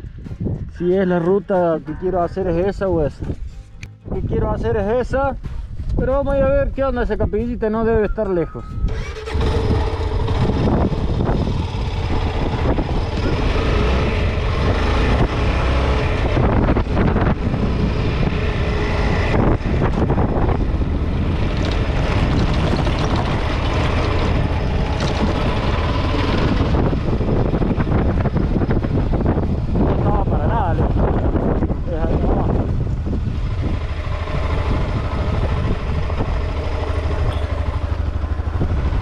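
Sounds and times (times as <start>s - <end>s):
wind rumble on microphone: 0.0s - 39.0s
motorcycle engine running: 8.8s - 39.0s.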